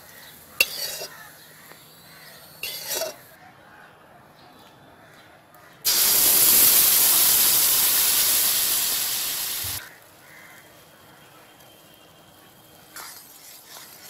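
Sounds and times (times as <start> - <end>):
liquid sizzling in a hot pan: 5.9 - 10.4.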